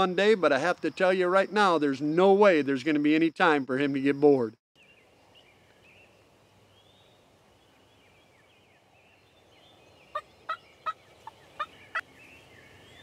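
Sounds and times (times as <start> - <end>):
faint background chirping: 0.0 - 13.0
wild turkey calling: 10.0 - 13.0.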